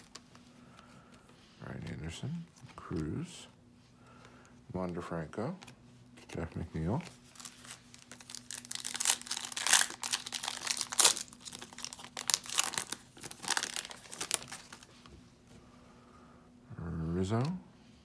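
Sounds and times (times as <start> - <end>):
foil wrapper tearing and crinkling: 7.2 - 14.9.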